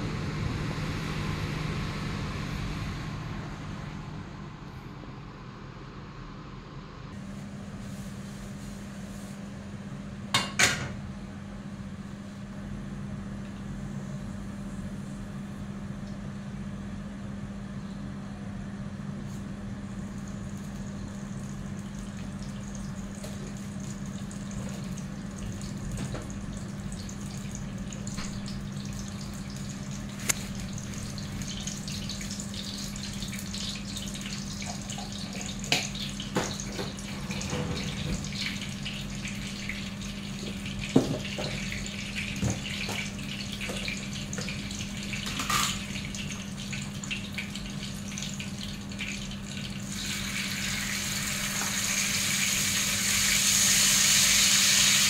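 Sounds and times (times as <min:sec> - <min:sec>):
steady low hum: 0:00.0 - 0:51.6
oil sizzling and crackling: 0:20.0 - 0:55.0.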